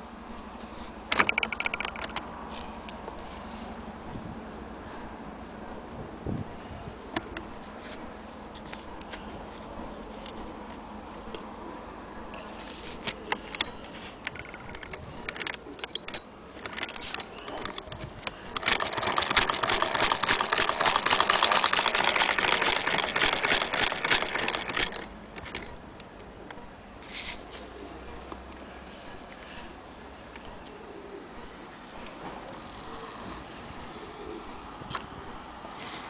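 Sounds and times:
sewing machine clicks: 1.1s - 2.2s, 14.3s - 25.7s
sewing machine clattering: 14.3s - 25.7s.

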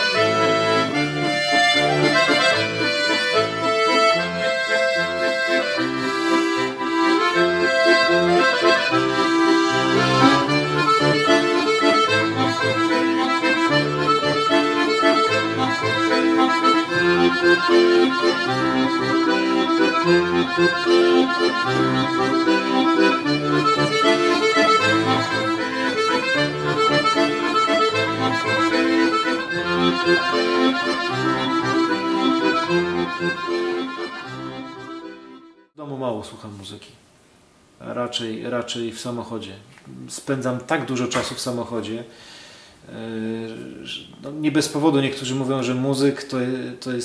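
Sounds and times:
solo accordion tune: 0.0s - 35.8s.

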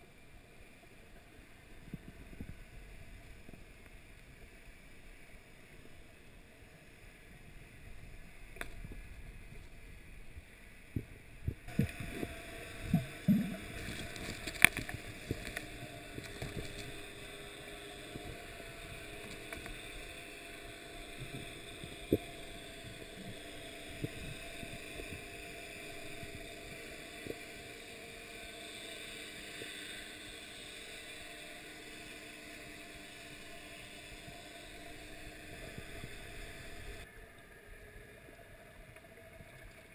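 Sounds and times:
muffled underwater wash: 0.0s - 39.9s
sharp underwater clicks and knocks: 8.5s - 9.7s, 12.9s - 25.2s.

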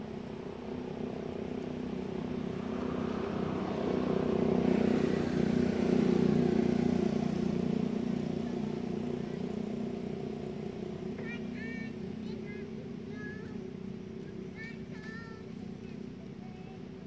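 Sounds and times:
passing vehicle engine hum: 0.0s - 17.0s.

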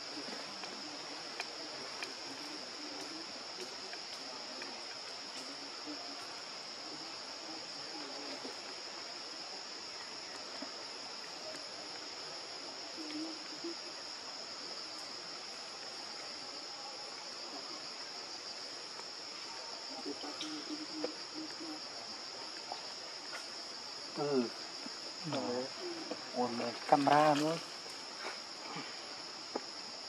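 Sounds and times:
forest insects droning: 0.0s - 30.0s.

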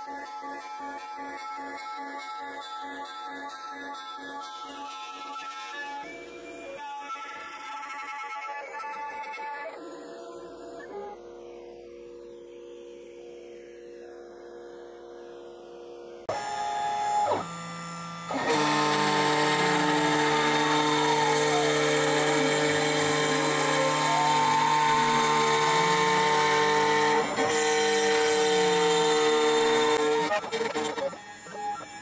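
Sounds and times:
router spindle whining: 16.3s - 32.0s.

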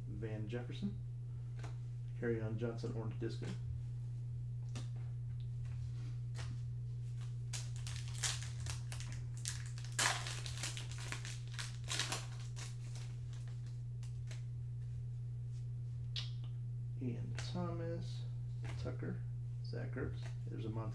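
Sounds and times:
steady low hum: 0.0s - 20.9s
foil wrapper crinkling: 7.2s - 14.4s.

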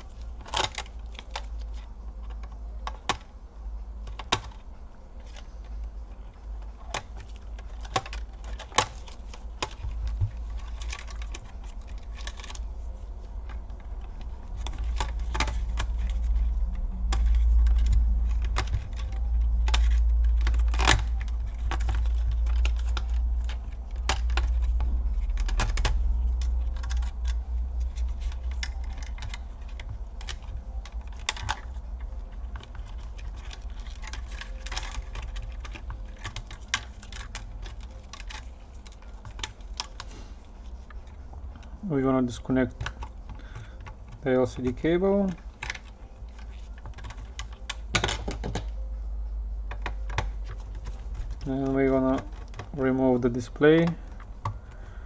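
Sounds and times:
tweezers clicking on laptop parts: 0.0s - 41.8s.

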